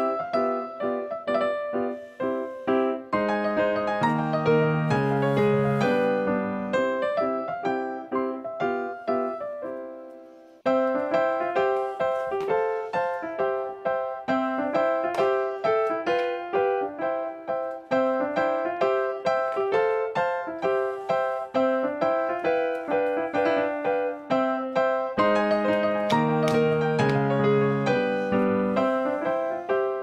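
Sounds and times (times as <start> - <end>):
bright keyboard tune: 21.5 - 30.0.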